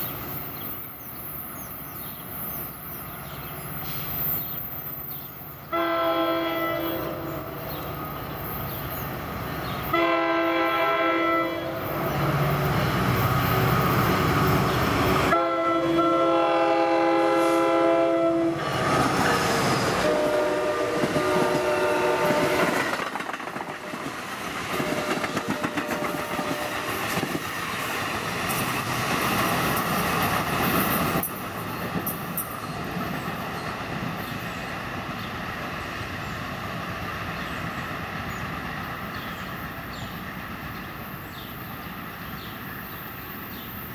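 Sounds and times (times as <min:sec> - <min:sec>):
train wheels on rails: 0:00.0 - 0:43.9
train air horn blasts: 0:05.7 - 0:07.6, 0:09.9 - 0:12.0, 0:15.3 - 0:18.8, 0:20.0 - 0:22.9, 0:24.7 - 0:27.0.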